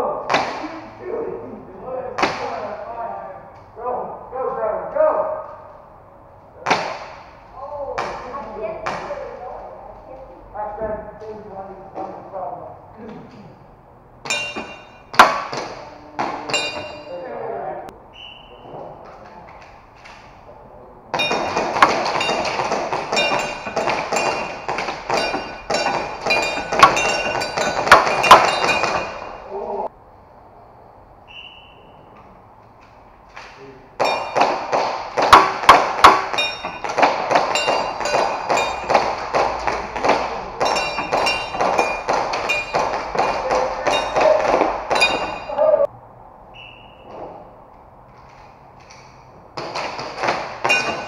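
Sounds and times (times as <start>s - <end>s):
pellets pinging off metal targets: 14.2s - 15.8s, 16.4s - 17.2s, 21.1s - 29.5s, 34.0s - 45.6s, 49.6s - 51.0s.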